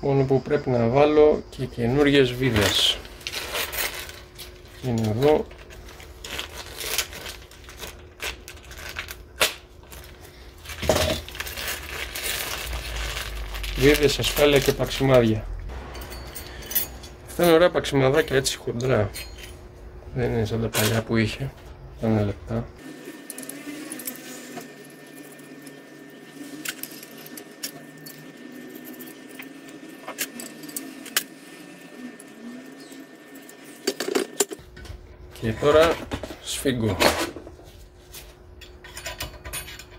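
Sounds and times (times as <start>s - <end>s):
plastic bag crinkling: 2.5s - 15.4s
bolts and nuts clinking: 15.7s - 19.7s, 23.2s - 31.4s, 38.6s - 39.9s.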